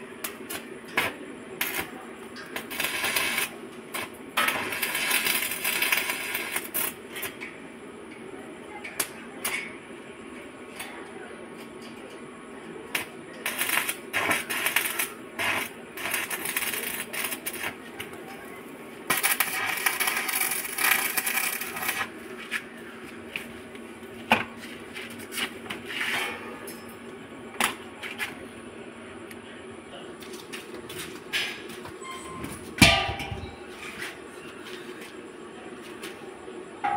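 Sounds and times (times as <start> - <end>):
arc welding crackle: 0.0 - 7.6, 12.8 - 23.5, 24.2 - 28.4.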